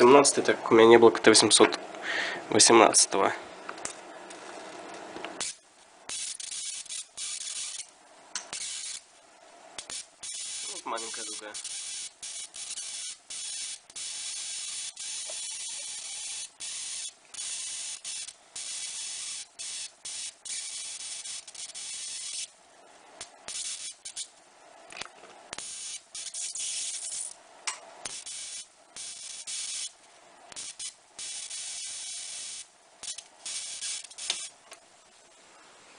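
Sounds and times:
electric arc hissing: 5.3 - 9.2, 9.8 - 22.6, 23.2 - 35.1.

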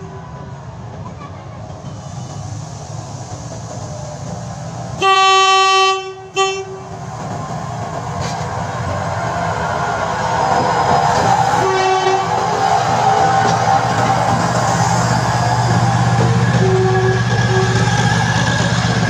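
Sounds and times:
train engine and wheels rumbling: 0.0 - 19.0
train horn blasts: 5.0 - 6.9, 11.6 - 12.4, 16.6 - 18.1.

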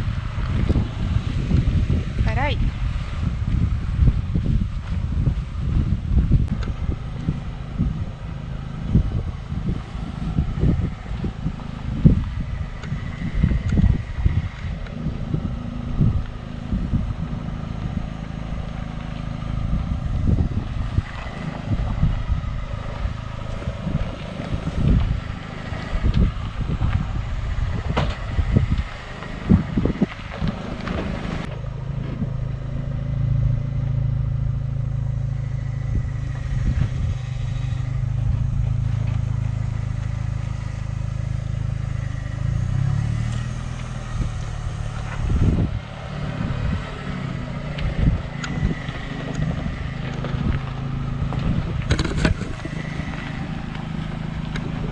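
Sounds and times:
off-road vehicle engine: 0.0 - 54.9
vehicle body knocks and thumps: 27.8 - 28.8.

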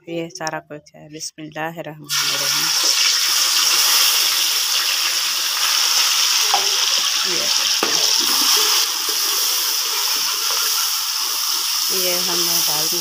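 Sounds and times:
vegetables sizzling in hot fat: 2.1 - 13.0
spoon stirring and scraping: 7.8 - 12.4.

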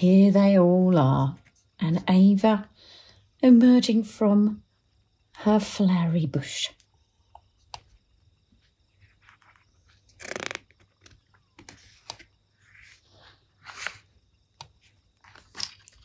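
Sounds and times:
page turning: 9.0 - 14.1, 14.8 - 16.0
paper pages rustling: 9.0 - 14.1, 14.8 - 16.0.

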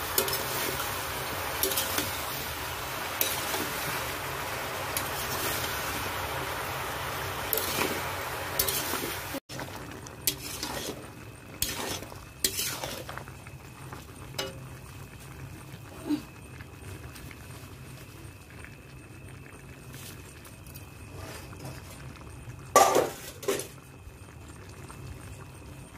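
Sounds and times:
metal spatula scraping a pan: 0.0 - 1.0, 1.6 - 2.4, 3.2 - 4.0, 7.5 - 9.3, 10.2 - 13.2
faint sizzle of vegetables: 0.0 - 25.9.

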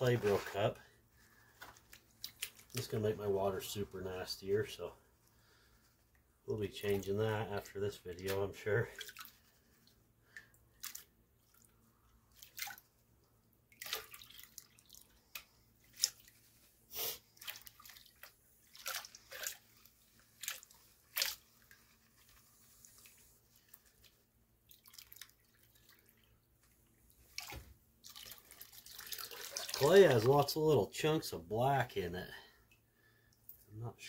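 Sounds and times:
muddy water splashing in pan: 17.4 - 21.7, 27.3 - 30.4.

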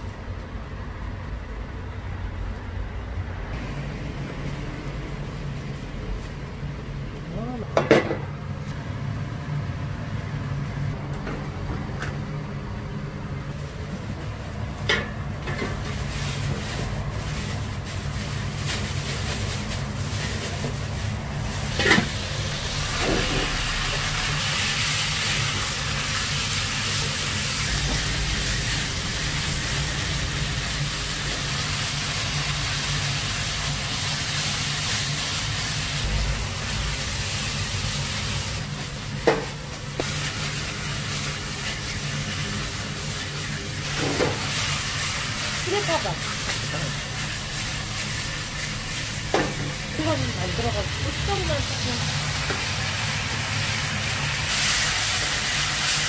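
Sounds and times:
food sizzling in a pan: 15.5 - 56.0.

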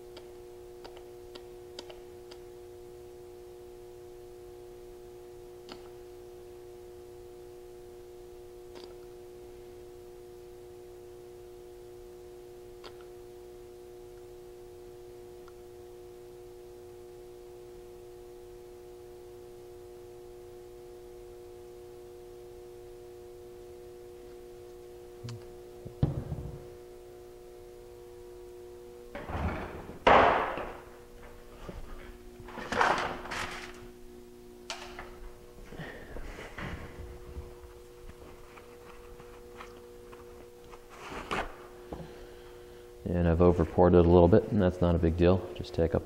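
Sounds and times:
steady background hum: 0.0 - 46.0
plastic bottle set down on table: 26.0 - 26.6.

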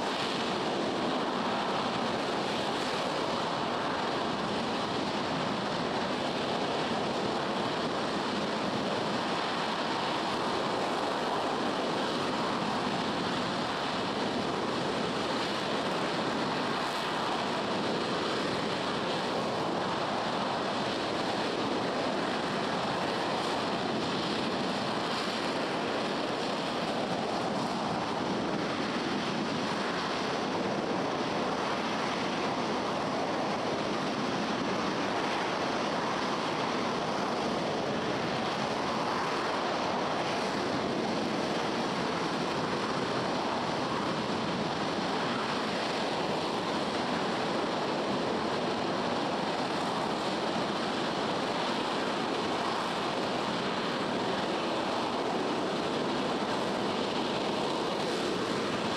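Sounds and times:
distant rocket engine roar: 0.0 - 58.9.

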